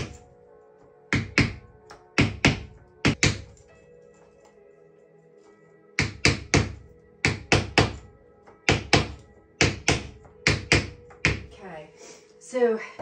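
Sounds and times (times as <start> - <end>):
wooden mallet knocking: 1.1 - 3.6, 6.0 - 11.5.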